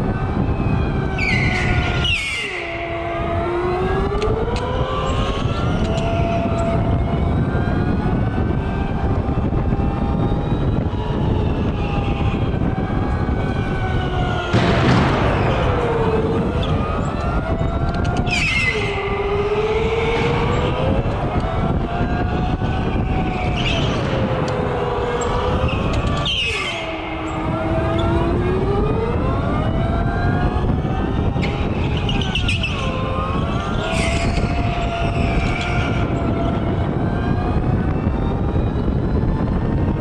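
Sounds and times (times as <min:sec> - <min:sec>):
electric go-kart motors whining: 0:00.3 - 0:39.9
loud rushing noise: 0:14.3 - 0:17.8, 0:18.7 - 0:29.8
steady low rumble: 0:14.5 - 0:18.2.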